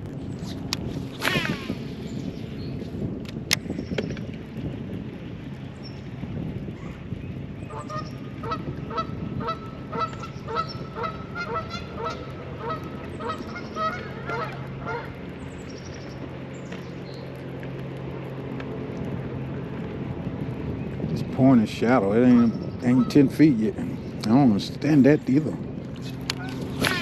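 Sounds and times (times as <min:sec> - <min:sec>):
steady low hum: 0:00.0 - 0:27.0
geese honking: 0:07.7 - 0:15.2, 0:26.3 - 0:27.0.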